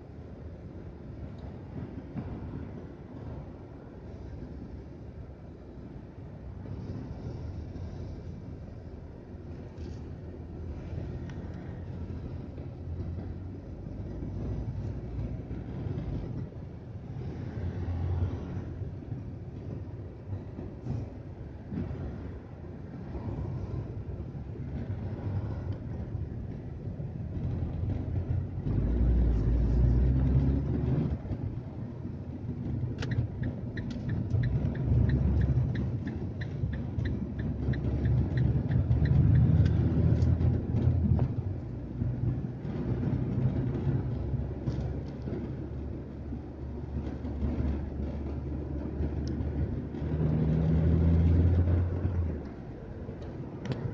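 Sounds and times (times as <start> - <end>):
car engine and road noise: 0.0 - 53.9
turn signal ticking: 32.7 - 41.0.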